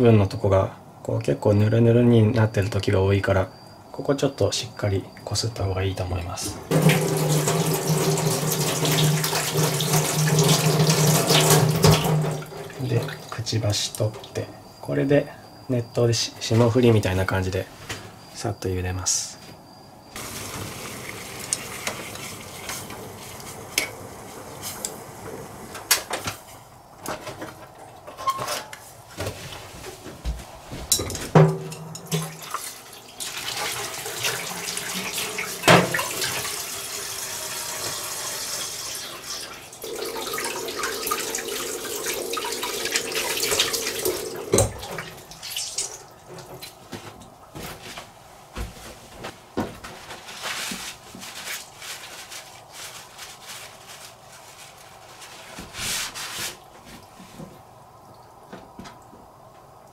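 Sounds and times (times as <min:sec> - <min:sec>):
tap running into metal sink: 0:06.7 - 0:13.2, 0:31.0 - 0:32.5, 0:33.6 - 0:36.6, 0:42.2 - 0:45.1
pot and utensils clattering: 0:06.7 - 0:13.4, 0:21.5 - 0:28.8, 0:30.8 - 0:32.8.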